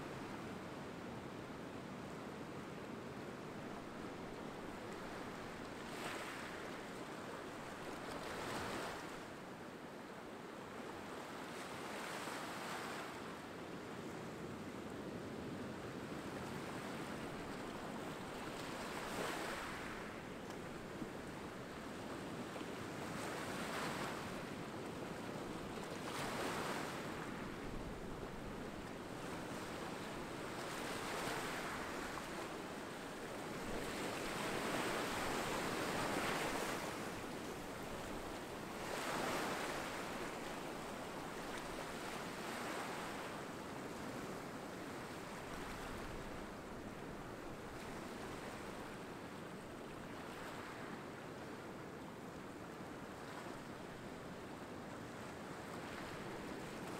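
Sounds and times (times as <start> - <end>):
small waves breaking on rocks: 33.6 - 43.2.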